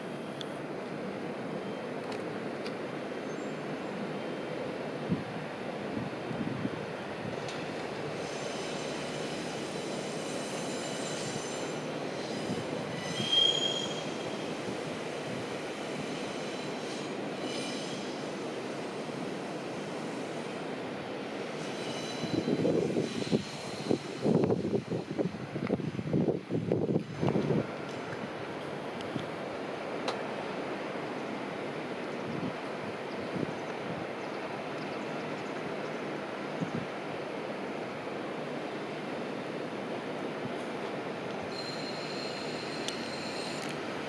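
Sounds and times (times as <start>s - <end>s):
railcar rumbling over tracks: 0.0s - 44.0s
wind buffeting microphone: 5.1s - 7.5s, 22.2s - 28.4s
wheel squeals: 8.2s - 14.3s, 41.5s - 43.7s.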